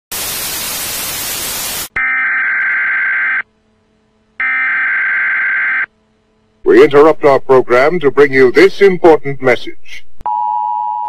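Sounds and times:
tv static hiss: 0:00.1 - 0:02.0.

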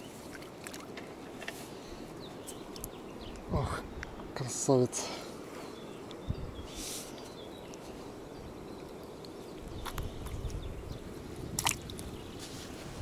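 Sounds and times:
soft handling clicks and rustles: 0:00.8 - 0:01.8.

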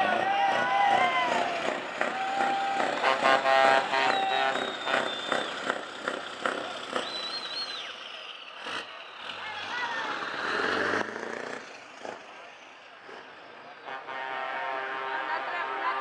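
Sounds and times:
loud truck horn: 0:00.0 - 0:06.6, 0:13.7 - 0:16.0
truck driving slowly past: 0:00.0 - 0:15.9
crowd voices: 0:00.0 - 0:16.0
thin high whistle-like tones: 0:04.2 - 0:05.8, 0:07.0 - 0:08.1.

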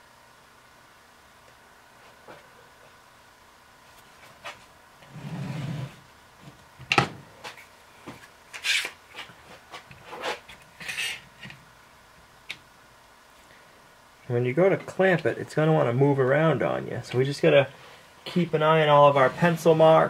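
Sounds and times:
short scrapes: 0:08.6 - 0:11.2.

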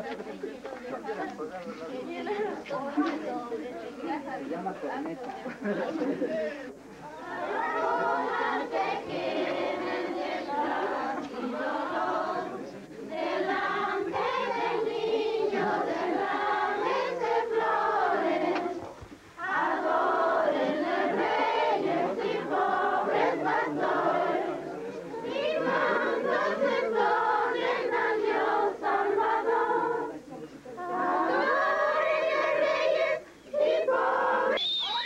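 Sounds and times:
women singing a hymn: 0:07.2 - 0:34.7.

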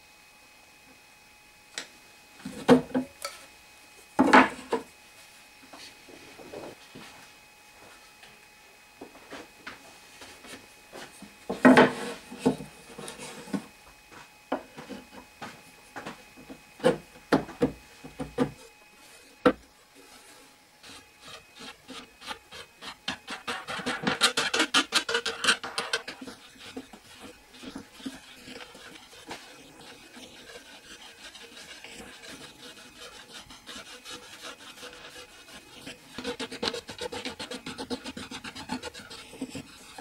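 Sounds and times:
ticking and scraping on threaded rod: 0:23.1 - 0:35.2.

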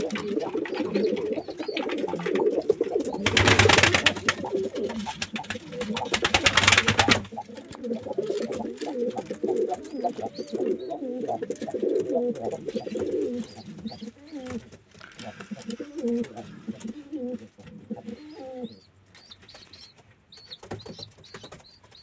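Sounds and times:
wings flapping: 0:00.0 - 0:10.2
pigeons cooing: 0:00.0 - 0:19.8.

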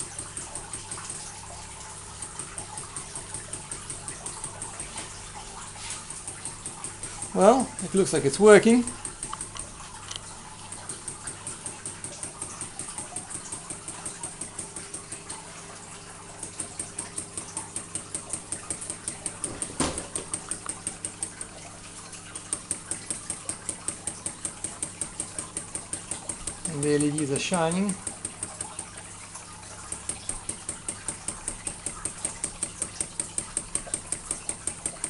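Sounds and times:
sharp thump: 0:19.5 - 0:20.1.

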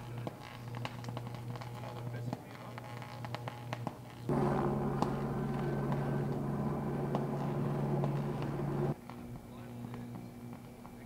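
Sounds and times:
power line crackling: 0:00.0 - 0:09.0
loud electrical buzz: 0:03.0 - 0:09.0.

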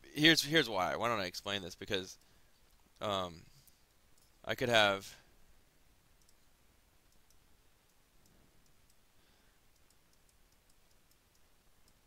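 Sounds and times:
computer mouse clicks: 0:06.2 - 0:06.5, 0:07.1 - 0:09.0, 0:09.7 - 0:12.0.

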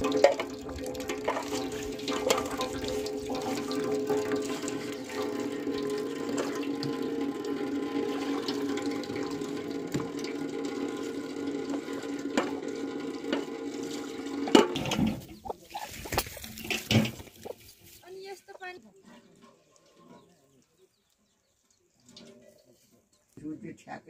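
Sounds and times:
tap water splashing into pot: 0:00.0 - 0:15.3.

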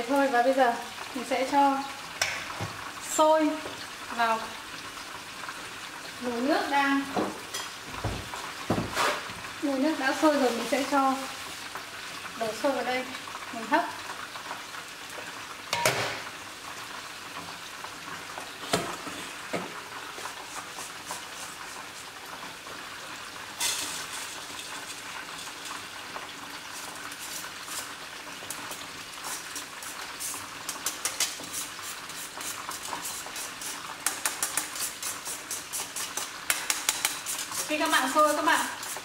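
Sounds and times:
chicken deep-frying in oil: 0:00.0 - 0:39.0
metal scraping and clanking: 0:23.6 - 0:25.9.

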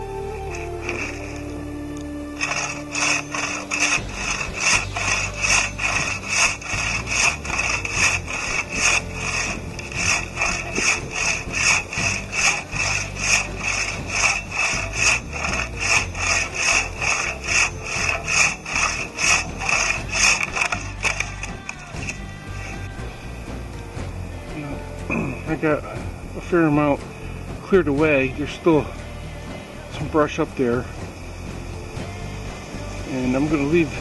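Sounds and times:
handsaw cutting wood: 0:00.3 - 0:01.7, 0:02.4 - 0:23.0.

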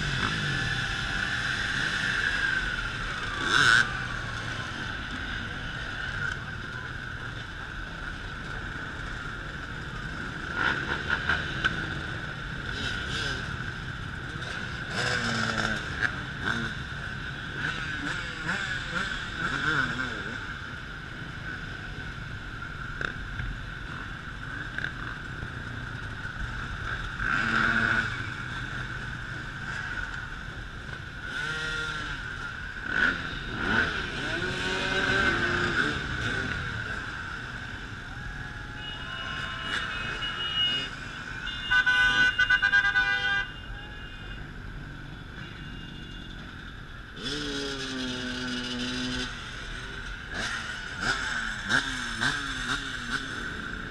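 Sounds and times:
dirt bike engines revving: 0:00.0 - 0:43.2, 0:44.3 - 0:53.9
loud horn bursts: 0:38.7 - 0:44.4.

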